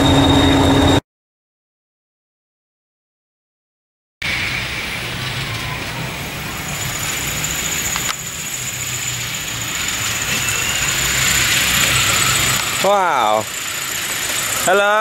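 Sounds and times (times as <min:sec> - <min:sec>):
steam locomotive hiss and rumble: 0:04.2 - 0:15.0
thin high steady tone: 0:05.4 - 0:15.0.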